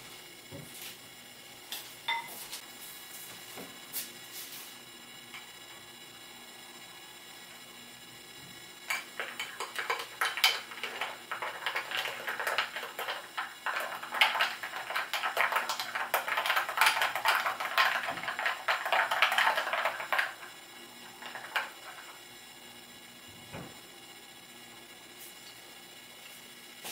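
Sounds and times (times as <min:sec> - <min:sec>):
spoon clinking against glass: 0:02.1 - 0:02.4.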